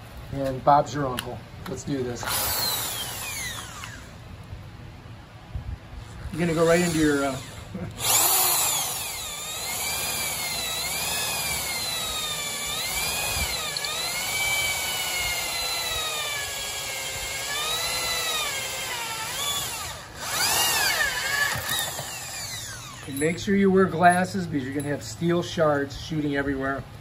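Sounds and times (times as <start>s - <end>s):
electric drill motor whine: 2.2s - 4.2s, 6.3s - 23.3s.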